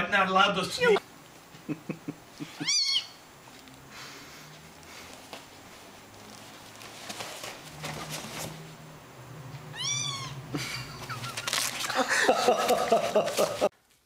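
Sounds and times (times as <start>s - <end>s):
kitten meowing: 2.6s - 3.2s, 9.7s - 10.4s
soft rustles: 4.5s - 8.8s, 10.8s - 14.0s.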